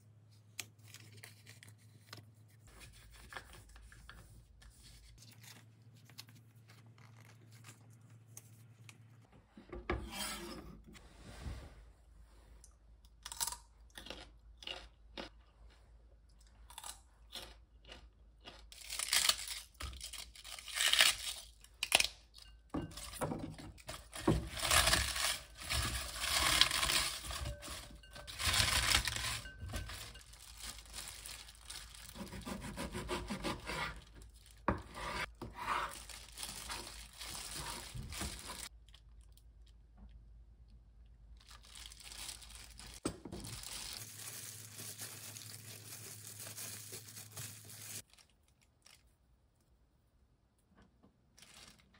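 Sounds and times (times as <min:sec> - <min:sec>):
cabbage crunching by hand: 0:23.8 - 0:38.8, 0:41.4 - 0:48.3.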